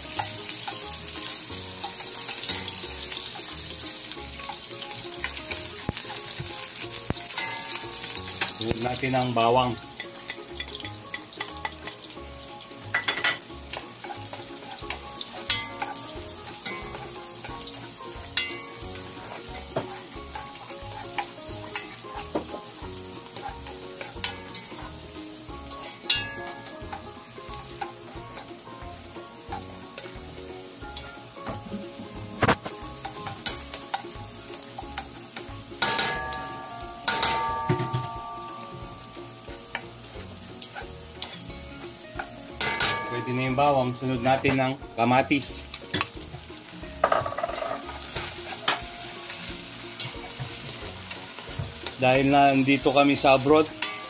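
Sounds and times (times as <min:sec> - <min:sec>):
onion and garlic sizzling: 0:00.0 - 0:54.0
spatula clanking against pot: 0:07.2 - 0:07.8, 0:10.0 - 0:12.0, 0:12.9 - 0:16.0, 0:16.6 - 0:17.7, 0:18.3 - 0:22.7, 0:25.7 - 0:27.0, 0:34.8 - 0:38.8, 0:42.2 - 0:43.4, 0:53.7 - 0:54.0.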